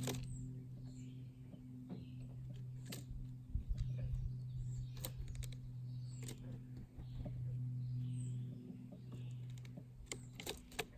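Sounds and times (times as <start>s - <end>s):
steady low hum: 0.0s - 10.9s
woodpecker pecking clicks: 4.8s - 6.6s, 8.9s - 10.9s.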